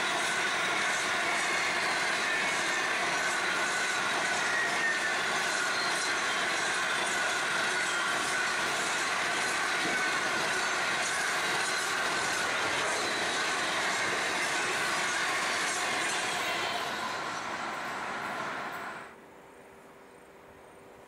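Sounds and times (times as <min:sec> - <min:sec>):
high wheel squeal: 0:00.0 - 0:19.1
train wheels rumbling on rails: 0:00.0 - 0:19.1.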